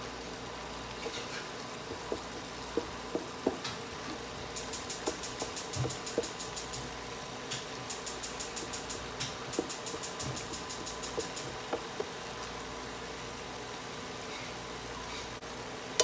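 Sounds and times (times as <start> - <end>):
vegetables sizzling in a frying pan: 0.0 - 16.0
spatula knocking against pan: 1.8 - 4.2, 5.0 - 6.4.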